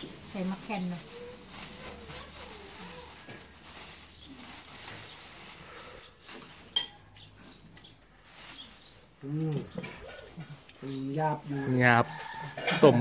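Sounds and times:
spoons clinking on ceramic bowls: 6.4s - 7.2s.

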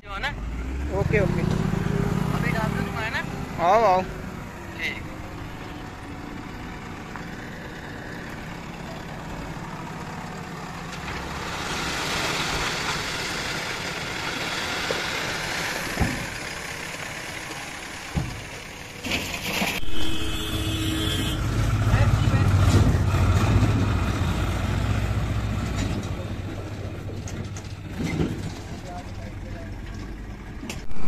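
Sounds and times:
diesel engines running: 0.0s - 31.0s
earth sliding out of truck: 11.0s - 16.4s, 19.0s - 20.1s
soil pouring into truck bed: 11.4s - 13.8s.

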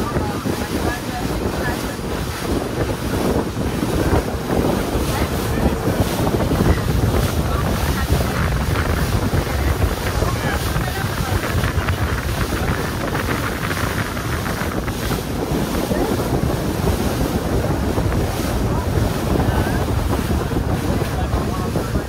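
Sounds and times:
water rushing along boat hull: 0.0s - 22.0s
wind buffeting microphone: 0.0s - 22.0s.

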